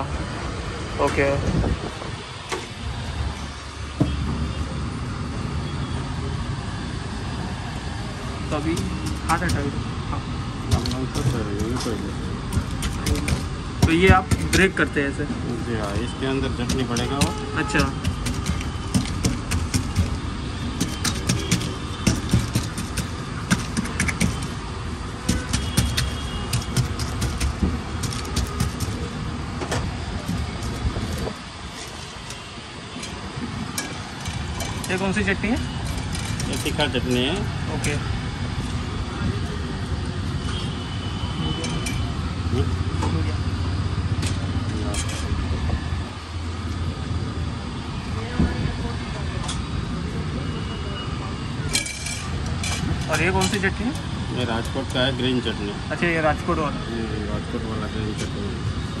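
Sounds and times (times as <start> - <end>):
low rumble of street traffic: 0.0 - 59.0
sharp knock: 25.2 - 29.0.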